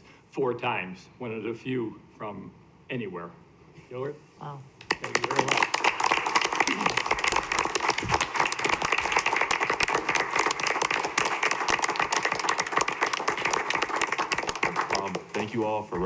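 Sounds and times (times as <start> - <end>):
people clapping: 4.8 - 16.0.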